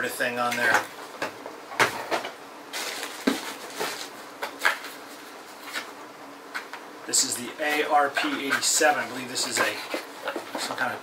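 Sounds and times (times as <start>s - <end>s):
packaging rustling: 2.7s - 5.9s.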